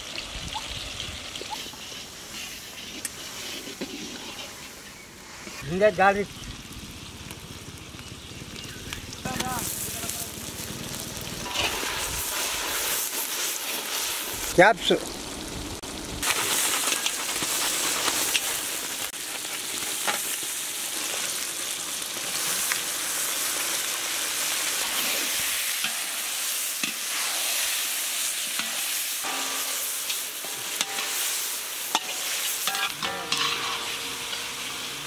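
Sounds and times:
food sizzling in oil: 0.0 - 35.0
ladle scraping pan: 1.5 - 4.8, 28.6 - 34.6.

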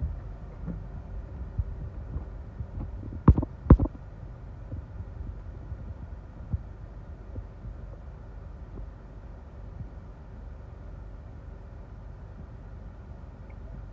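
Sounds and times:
wind buffeting car: 0.0 - 13.9
sharp knocks: 3.2 - 4.0.

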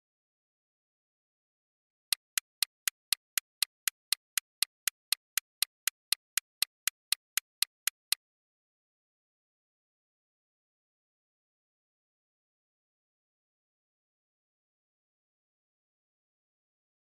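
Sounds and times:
clock ticking: 2.1 - 8.2.

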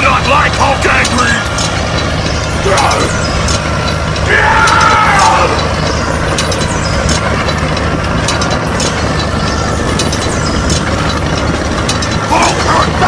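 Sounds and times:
clicks and rattles: 0.0 - 13.0
small tractor motor running: 0.0 - 13.0.

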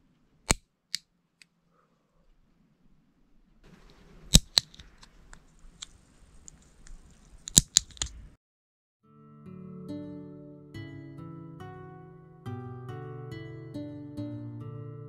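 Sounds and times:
nail clipper clicks: 4.3 - 5.0, 6.8 - 8.2
clipper scraping against nail: 4.3 - 5.1, 5.7 - 8.2.

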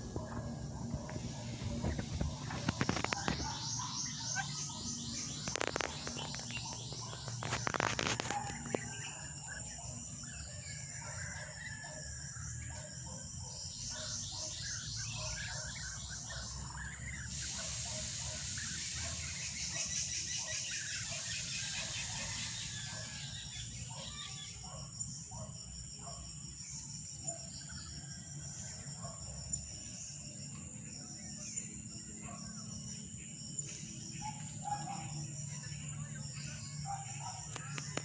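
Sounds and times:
bird chirps: 0.0 - 12.0, 12.6 - 25.4
insect hiss with pulsing trill: 0.0 - 38.0.

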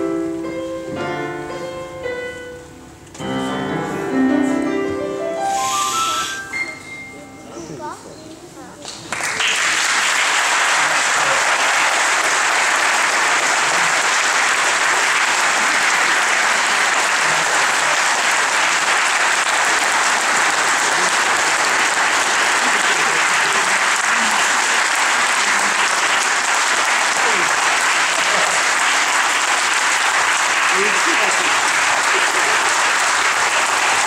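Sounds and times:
audience applauding: 5.6 - 6.4, 9.1 - 34.0.

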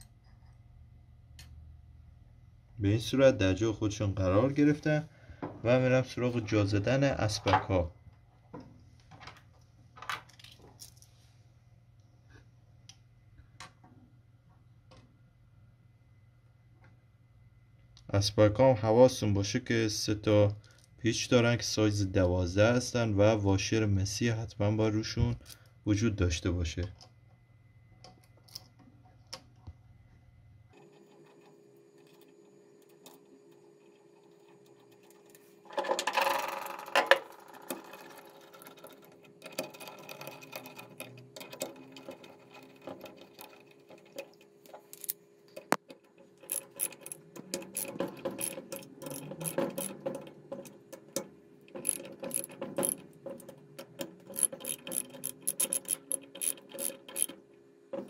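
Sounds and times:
ratchet wrench clicking: 46.4 - 50.1, 51.8 - 53.0, 54.3 - 57.4.

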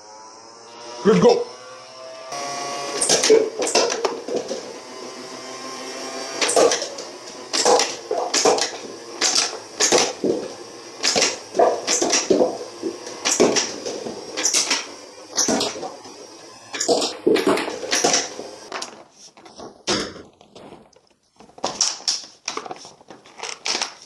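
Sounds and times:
toy blaster motor whirring: 0.0 - 19.0
darts clacking against paper cups: 3.0 - 4.6, 6.4 - 16.1, 16.7 - 19.0.

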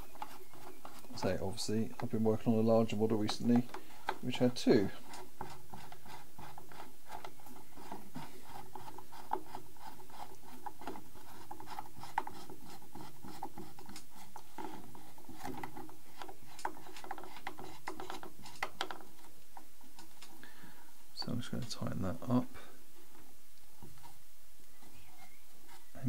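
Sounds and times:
metal clicks and scrapes: 0.0 - 20.4.

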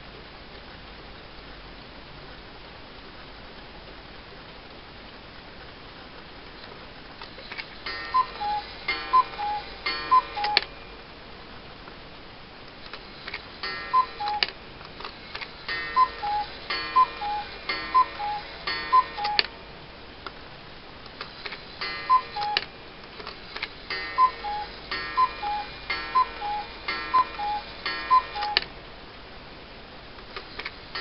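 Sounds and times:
clock ticking: 7.8 - 10.8, 13.6 - 14.6, 15.7 - 19.7, 21.8 - 22.8, 23.9 - 28.7
cuckoo clock calling: 7.8 - 11.0, 13.6 - 14.7, 15.6 - 19.8, 21.8 - 23.0, 23.9 - 28.7.

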